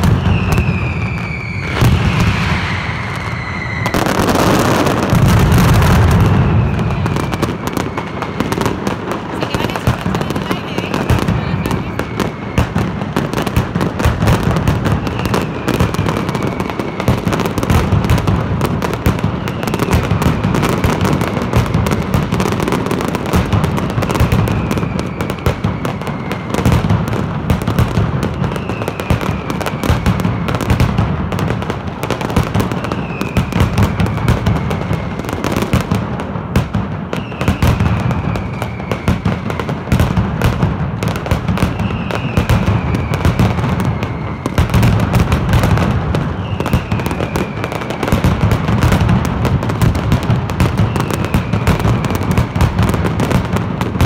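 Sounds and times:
falling whistle: 0.0 - 5.1, 32.7 - 35.5, 37.2 - 39.5, 41.7 - 44.8
firecrackers barrage: 0.0 - 54.0.

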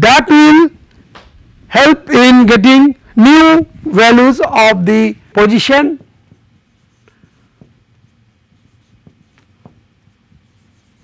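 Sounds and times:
marker squeaking on whiteboard: 6.0 - 11.0.

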